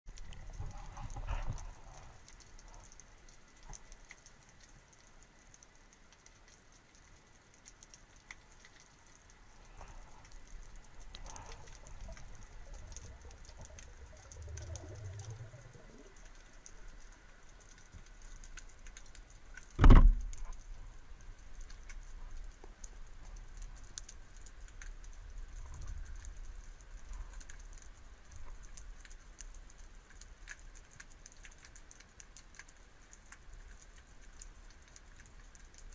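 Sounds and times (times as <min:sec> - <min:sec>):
underwater crackle of tiny clicks: 0:00.1 - 0:35.9
low underwater rumbles: 0:09.4 - 0:28.8.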